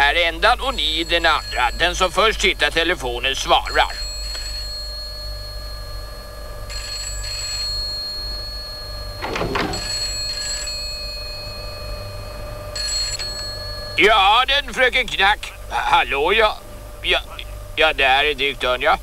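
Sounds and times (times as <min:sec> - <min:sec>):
telephone ringing: 0:00.6 - 0:14.3.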